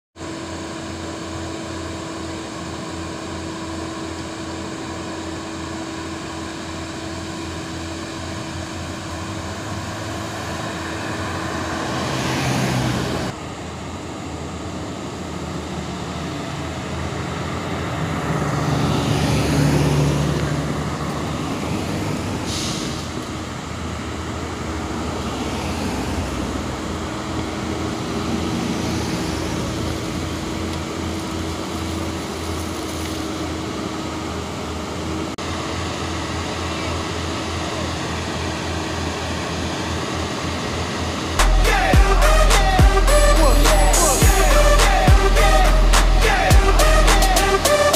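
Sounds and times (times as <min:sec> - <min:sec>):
road traffic engine drone: 0:00.2 - 0:47.9
vehicle passing close: 0:08.1 - 0:13.6, 0:15.5 - 0:23.2, 0:24.1 - 0:30.7.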